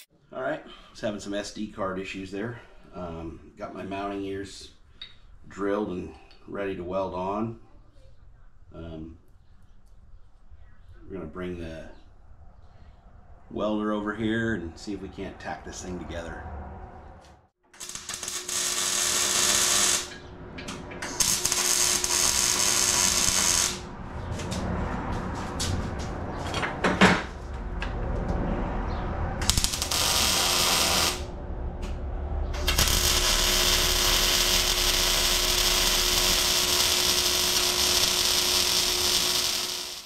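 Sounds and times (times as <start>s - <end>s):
arc welder crackling: 17.7s - 24.0s, 29.4s - 32.0s, 32.6s - 40.0s.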